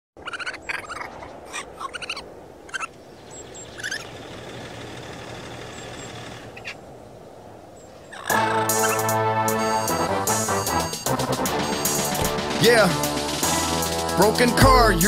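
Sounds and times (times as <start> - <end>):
raccoons chittering: 0.2 - 6.8, 7.9 - 9.7
music: 8.3 - 15.0.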